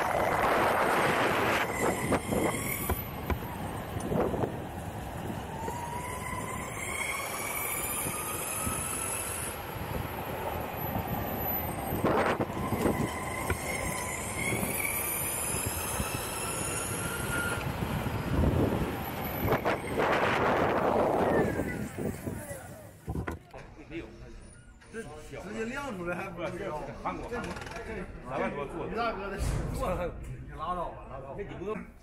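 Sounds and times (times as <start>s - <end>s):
electric motors whining: 0.0s - 22.4s
wheels rumbling on asphalt: 0.0s - 23.2s.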